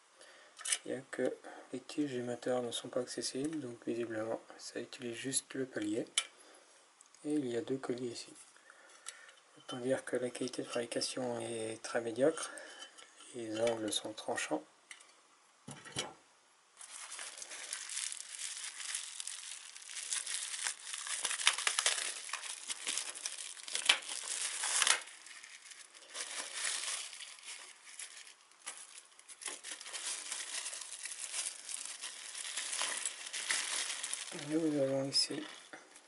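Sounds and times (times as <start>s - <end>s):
bubble wrap crinkling: 16.8s - 36.0s.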